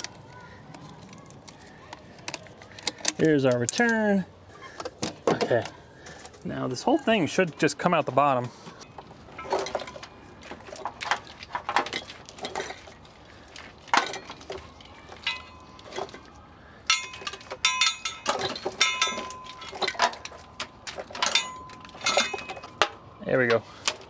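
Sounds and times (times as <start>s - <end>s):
metal lines clinking and scraping: 8.8s - 24.0s.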